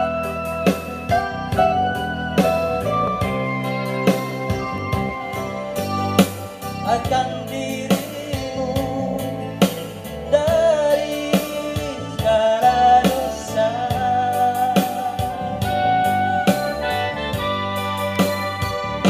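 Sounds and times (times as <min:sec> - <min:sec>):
electronic keyboard: 0:00.0 - 0:19.0
steady drum beat: 0:00.0 - 0:19.0
man singing into microphone: 0:06.7 - 0:17.1.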